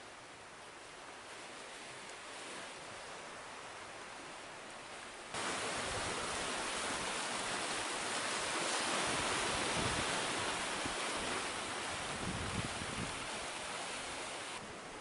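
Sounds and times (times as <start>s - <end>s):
surf rushing over rocks: 5.3s - 15.0s.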